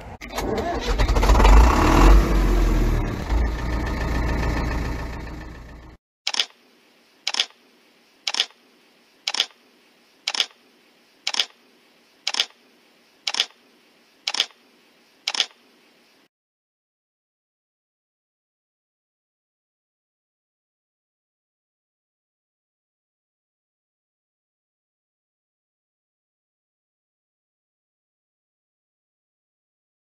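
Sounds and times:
tractor engine running: 0:00.0 - 0:06.0
camera shutter clicks: 0:06.3 - 0:06.6, 0:07.3 - 0:07.6, 0:08.3 - 0:08.6, 0:09.3 - 0:09.6, 0:10.3 - 0:10.6, 0:11.3 - 0:11.6, 0:12.3 - 0:12.6, 0:13.3 - 0:13.6, 0:14.3 - 0:14.6, 0:15.3 - 0:15.6.

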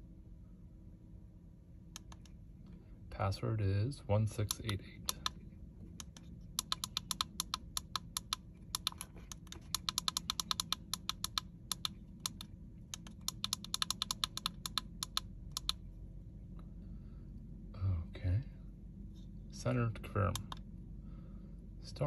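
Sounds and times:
push buttons clicking: 0:02.0 - 0:02.4, 0:06.0 - 0:15.8, 0:20.3 - 0:20.6.

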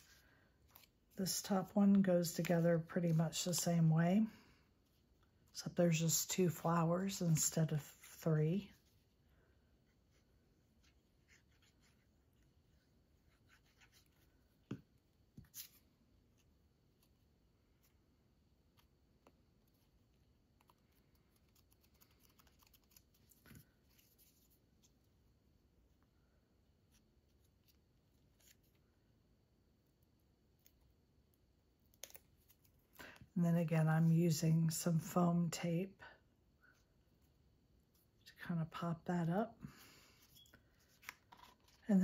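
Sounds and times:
paper rustling: 0:20.7 - 0:24.9, 0:40.2 - 0:41.9.

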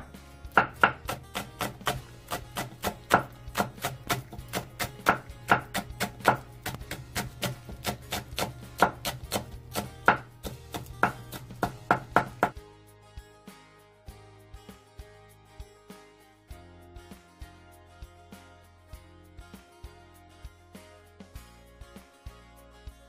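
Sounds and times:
knife chopping on wooden board: 0:00.0 - 0:12.6.

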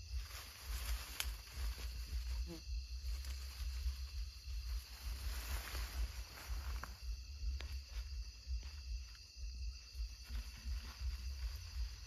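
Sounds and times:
night insects chirring: 0:00.0 - 0:12.0.

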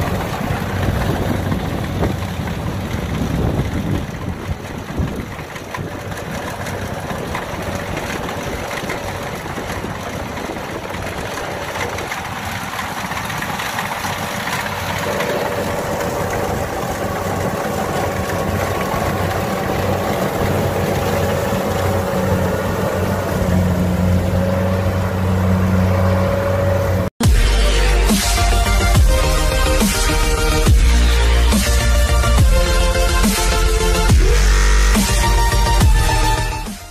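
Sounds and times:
combine harvester engine running: 0:00.0 - 0:36.9
low drone: 0:00.0 - 0:36.9
high-pitched hum: 0:12.8 - 0:36.9.

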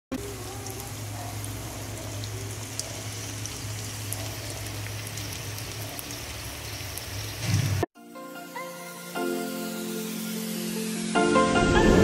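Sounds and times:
food sizzling on hot plate: 0:00.1 - 0:07.9, 0:08.8 - 0:11.1
music: 0:08.0 - 0:12.0.

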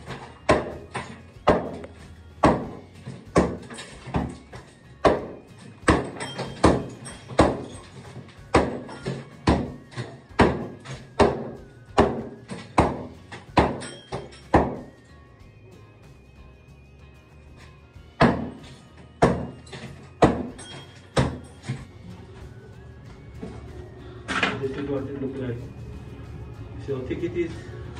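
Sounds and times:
hammer striking tiled wall: 0:00.0 - 0:14.9, 0:18.2 - 0:21.8.

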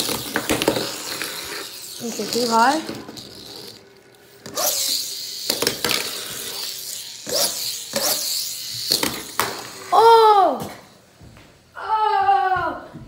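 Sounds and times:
plastic toy pieces clicking: 0:04.5 - 0:09.8.

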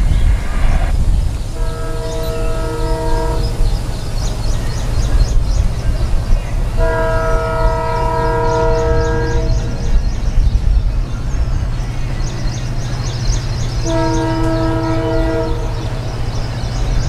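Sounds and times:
low train rumble: 0:00.0 - 0:17.0
locomotive air horn blasts: 0:01.5 - 0:03.8, 0:06.8 - 0:09.8, 0:13.8 - 0:16.0.

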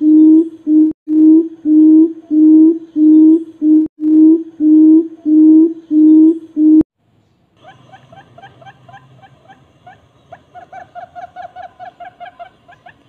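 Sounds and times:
low hooting bird call: 0:00.0 - 0:06.8.

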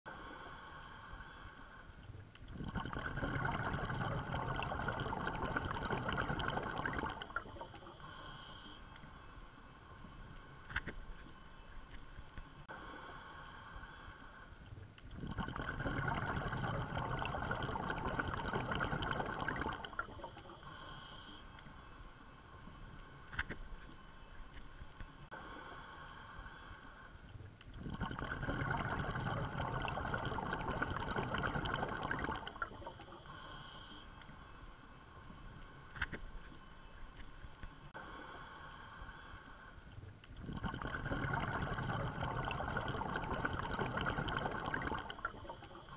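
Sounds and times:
water gurgling: 0:02.3 - 0:08.1, 0:15.0 - 0:20.8, 0:27.7 - 0:33.3, 0:40.2 - 0:45.9
underwater bubbling and rushing: 0:02.4 - 0:08.3, 0:15.1 - 0:21.0, 0:27.7 - 0:33.5, 0:40.4 - 0:45.9.

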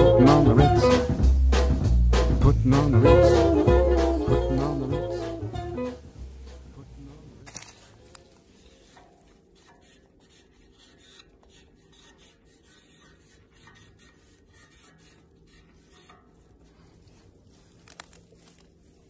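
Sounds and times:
marker rubbing on metal railing: 0:07.8 - 0:17.9.

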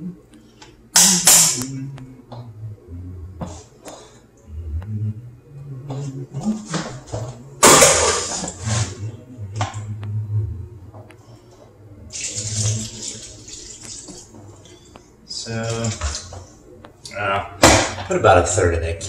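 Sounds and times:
broth pouring and splashing: 0:12.1 - 0:14.2.

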